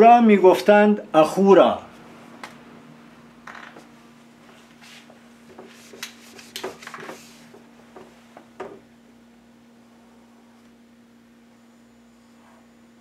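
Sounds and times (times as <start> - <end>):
low steady hum: 0.0 - 13.0
whiteboard being wiped: 4.5 - 7.6
small knocks: 7.9 - 8.8.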